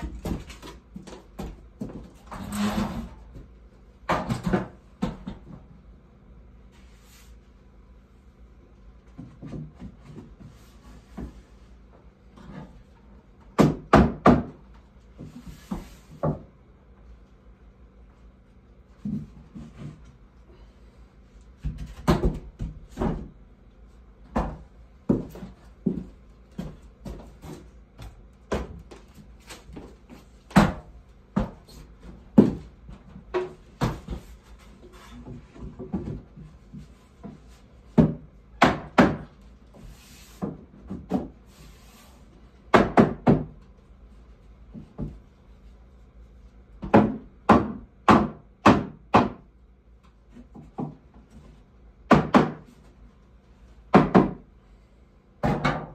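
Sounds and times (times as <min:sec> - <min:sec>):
hammer knocking wooden boards: 0:13.5 - 0:14.6, 0:21.6 - 0:23.3, 0:37.2 - 0:39.4, 0:42.7 - 0:43.6, 0:46.8 - 0:49.5, 0:52.0 - 0:52.7, 0:53.9 - 0:54.5, 0:55.4 - 0:55.9.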